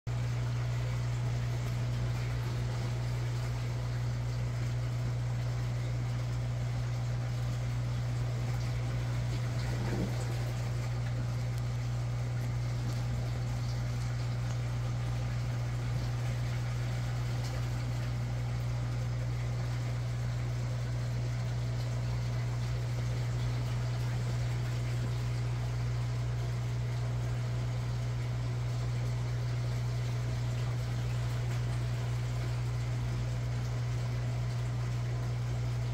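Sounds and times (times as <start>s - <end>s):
aquarium pump humming: 0.1s - 35.9s
hiss of moving water: 9.4s - 11.0s.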